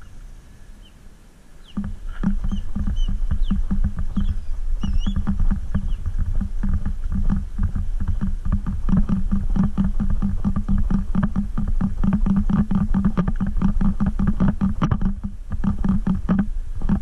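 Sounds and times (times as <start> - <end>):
high chirps: 2.4 - 5.2.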